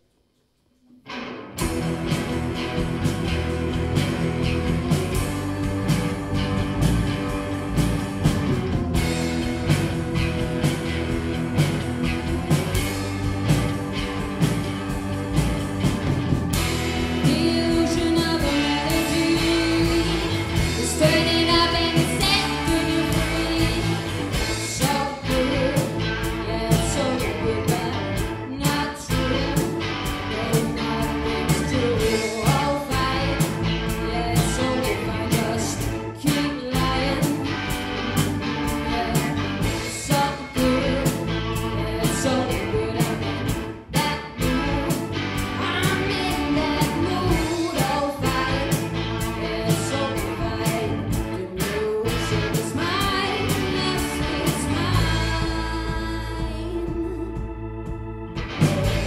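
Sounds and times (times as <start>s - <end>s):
live band playing blues groove: 1.1s - 59.0s
woman singing: 17.2s - 37.5s, 38.6s - 57.4s.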